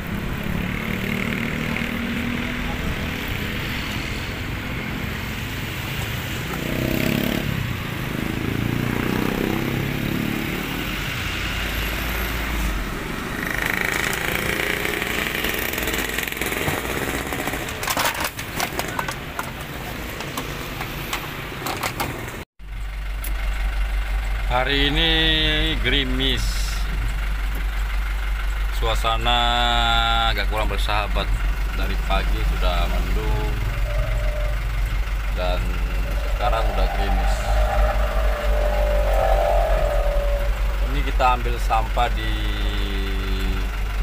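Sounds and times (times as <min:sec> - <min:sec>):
vehicle engines running: 0:00.0 - 0:44.0
low engine hum: 0:31.2 - 0:44.0.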